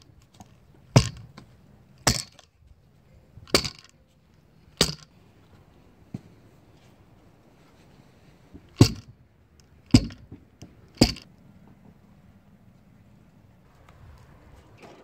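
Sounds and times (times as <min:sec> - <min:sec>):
hand tamper thudding on soil: 0:01.0 - 0:01.4, 0:03.5 - 0:03.9, 0:08.6 - 0:09.2, 0:09.9 - 0:11.3.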